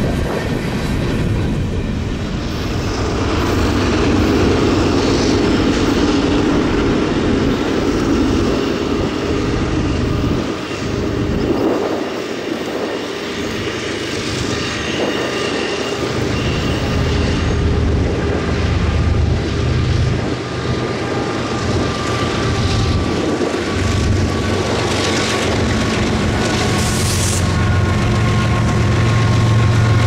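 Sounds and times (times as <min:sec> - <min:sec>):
diesel locomotive engine rumble: 0:00.0 - 0:30.0
thin whine: 0:00.0 - 0:30.0.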